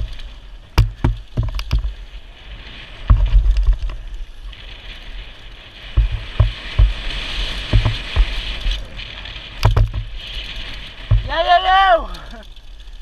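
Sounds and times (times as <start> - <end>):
bike thumping over bumps: 0.0 - 2.1, 2.9 - 4.1, 5.8 - 8.9, 9.5 - 11.8.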